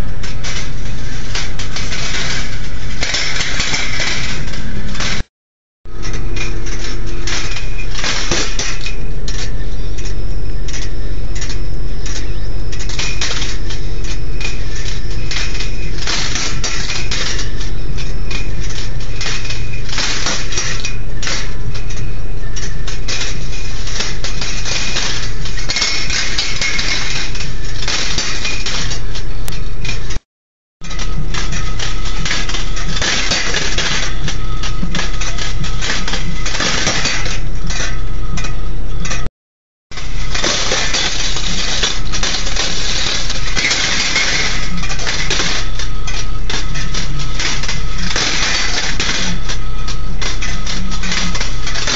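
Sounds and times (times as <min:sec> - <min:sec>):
steady low hum: 0:00.0 - 0:05.3, 0:05.9 - 0:30.2, 0:30.8 - 0:39.3, 0:39.9 - 0:51.9
steel balls clicking and rattling: 0:06.0 - 0:30.2, 0:40.0 - 0:51.9
low motor hum: 0:30.8 - 0:39.3.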